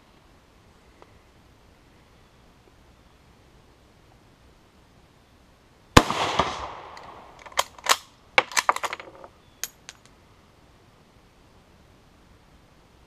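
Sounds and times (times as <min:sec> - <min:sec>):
rifle shot with echo: 0:06.0 - 0:08.0
rifle bolt clicking: 0:06.9 - 0:09.0.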